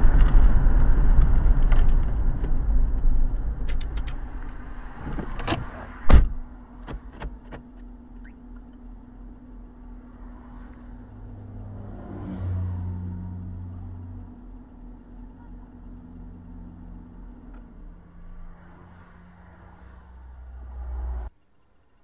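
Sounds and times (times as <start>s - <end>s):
engine idle hum: 0.0s - 5.5s, 6.1s - 22.0s
road and engine rumble: 0.0s - 22.0s
sharp thump: 6.1s - 6.4s.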